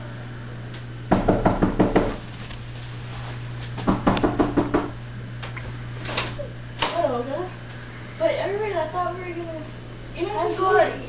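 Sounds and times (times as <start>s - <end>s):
rapid knocking on a door: 1.1s - 2.2s, 3.8s - 5.0s.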